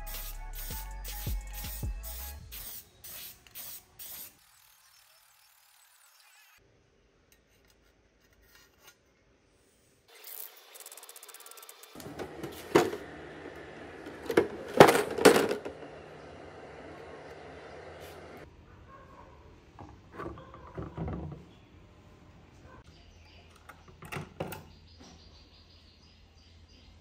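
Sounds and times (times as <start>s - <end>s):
music with a beat: 0.0s - 2.5s
computer parts clattering in plastic tray: 14.3s - 15.7s.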